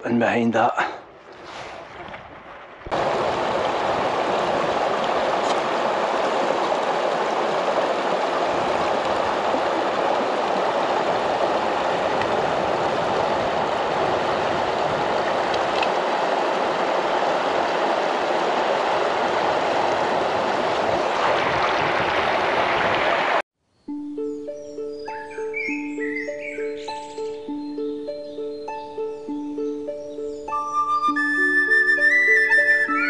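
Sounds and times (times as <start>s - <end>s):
mountain stream rushing: 1.0s - 23.4s.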